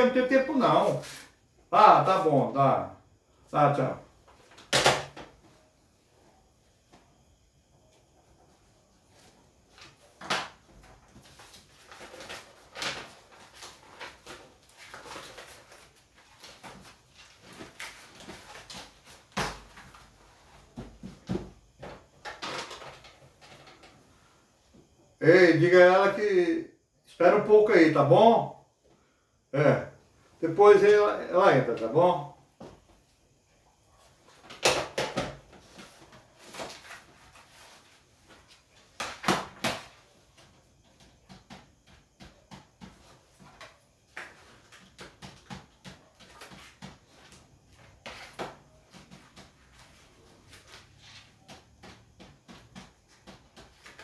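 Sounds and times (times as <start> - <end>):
paper rustling: 11.1 - 20.0.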